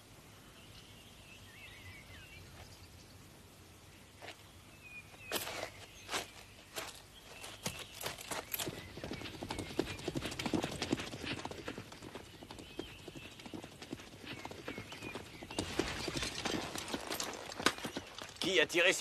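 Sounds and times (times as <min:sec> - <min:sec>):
horses hoofbeats: 0:06.8 - 0:19.0.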